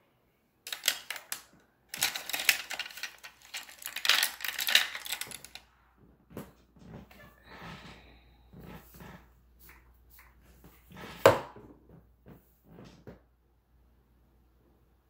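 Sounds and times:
small hard objects clattering: 0.7s - 5.7s.

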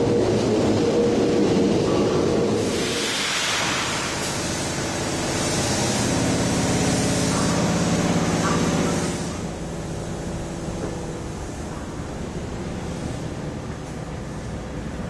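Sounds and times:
sliding train door opening: 2.0s - 5.0s
rush of air: 2.6s - 8.2s.

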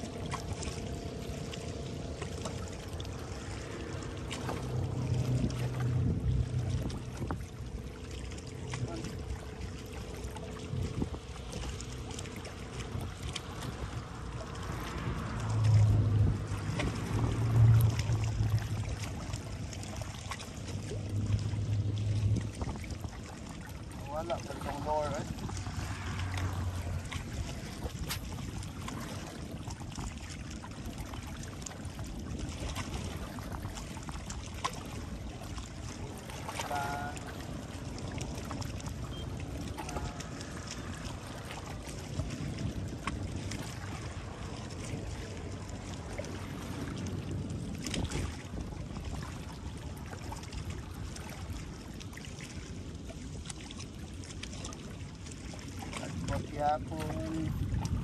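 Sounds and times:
sea water washing: 0.0s - 58.0s
wind: 0.0s - 58.0s.

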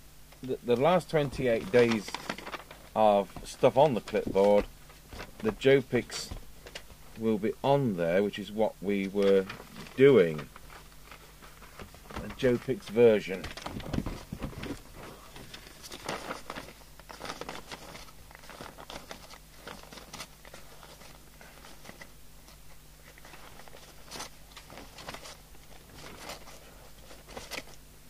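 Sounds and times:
faint low hum: 0.0s - 28.0s
paper pages rustling: 0.4s - 7.5s, 8.9s - 27.9s.

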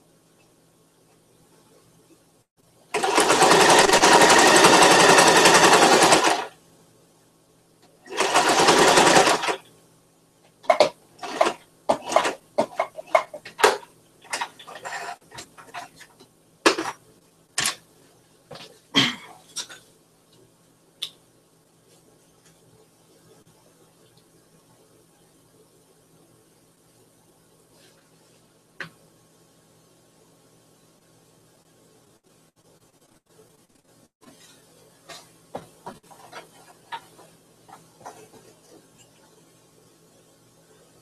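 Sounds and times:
sewing machine stitching: 2.9s - 6.5s, 8.0s - 9.6s, 10.7s - 15.9s.

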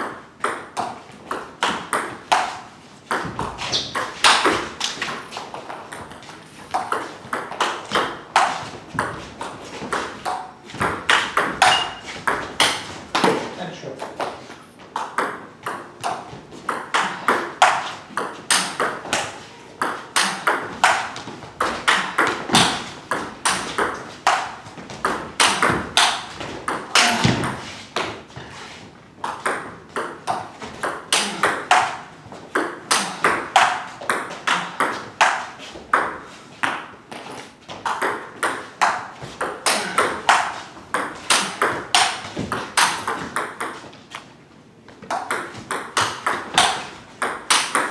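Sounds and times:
ball bouncing on table: 9.8s - 13.4s, 15.0s - 28.2s, 37.7s - 43.9s, 45.0s - 47.9s
table tennis ball clicking off bats: 45.1s - 47.9s.

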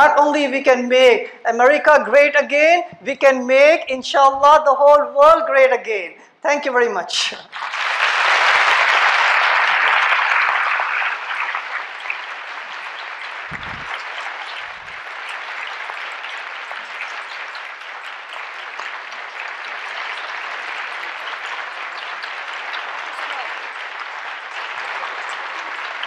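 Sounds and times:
audience applauding: 7.5s - 26.0s.

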